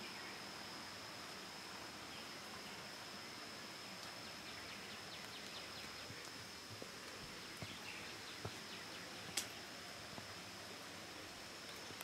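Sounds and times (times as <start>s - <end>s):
soft background hiss: 0.0s - 12.0s
steady high-pitched tone: 0.0s - 12.0s
sharp clicks: 9.3s - 9.6s.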